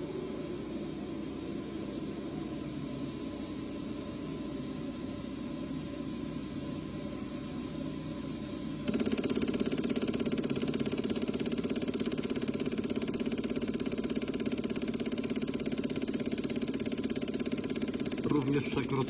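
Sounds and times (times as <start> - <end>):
hiss and hum of test bench: 0.0 - 19.0
injector rapid even ticking: 8.9 - 19.0.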